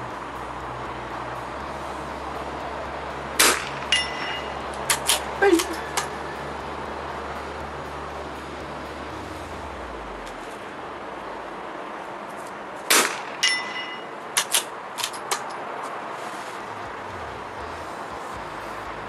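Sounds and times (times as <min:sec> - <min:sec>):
ringing metallic clang: 0:03.4 - 0:06.4, 0:12.9 - 0:14.2
rifle shot: 0:12.9 - 0:13.5.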